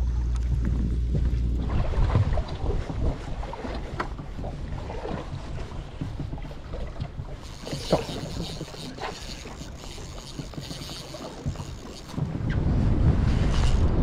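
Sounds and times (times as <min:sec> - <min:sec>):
water slapping boat hull: 0:00.0 - 0:14.0
wind buffeting microphone: 0:00.0 - 0:14.0.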